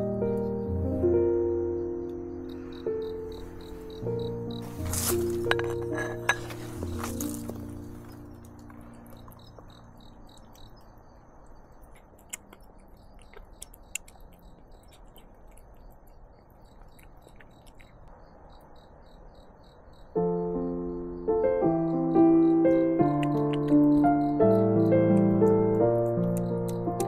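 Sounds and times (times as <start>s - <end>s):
piano music: 0.0s - 11.9s, 20.2s - 27.0s
faint high chirp: 0.0s - 25.4s
cat eating clicks: 11.8s - 18.1s, 23.0s - 27.0s.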